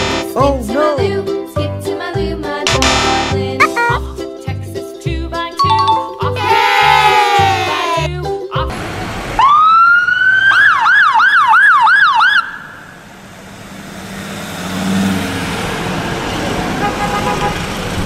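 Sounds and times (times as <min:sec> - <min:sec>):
road noise from passing van: 0:08.6 - 0:10.8, 0:12.2 - 0:18.0
ambulance siren wailing and yelping: 0:09.4 - 0:12.9.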